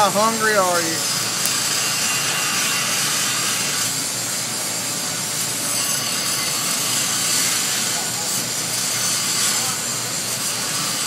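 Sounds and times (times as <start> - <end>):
welding arc hissing: 0.0 - 11.0.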